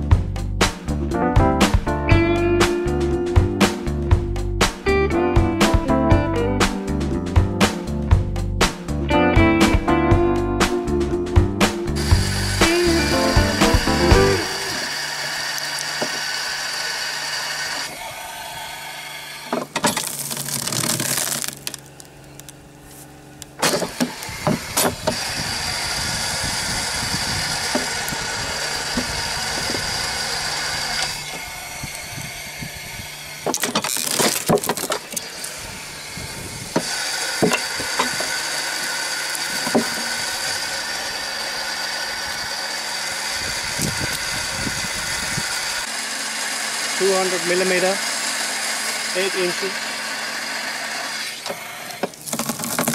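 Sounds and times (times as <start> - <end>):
pressure-washer pump running: 11.9 - 22.5, 23.5 - 52.9
logs splitting with sharp cracks: 19.5 - 22.6, 23.5 - 32.0, 33.3 - 35.6, 51.1 - 52.9.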